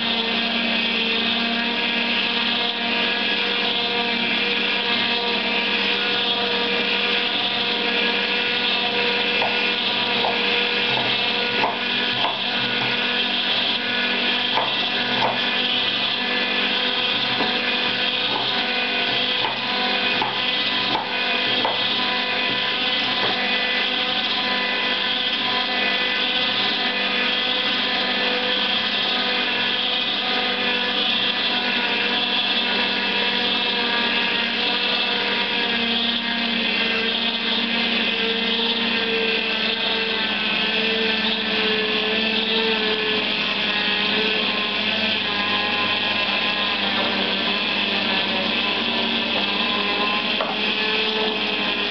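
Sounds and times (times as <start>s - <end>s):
juicer motor humming: 0.0s - 51.9s
knife chopping on wooden board: 10.2s - 13.0s, 14.5s - 15.5s, 18.2s - 21.9s.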